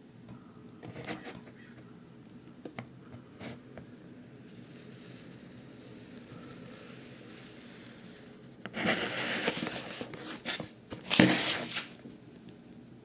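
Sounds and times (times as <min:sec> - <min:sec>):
cardboard box rustling and scraping: 0:08.8 - 0:12.0.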